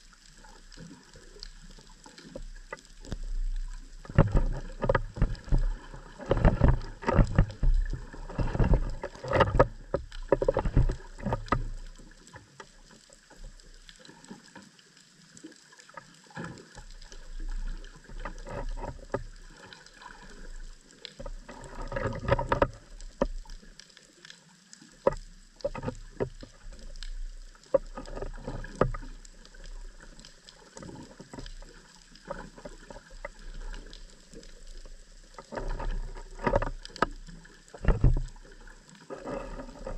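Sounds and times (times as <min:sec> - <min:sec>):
low underwater rumbling: 0:00.0 - 0:14.4, 0:16.3 - 0:23.9, 0:24.9 - 0:39.9
underwater clicking and knocking: 0:00.2 - 0:14.1, 0:15.9 - 0:39.9.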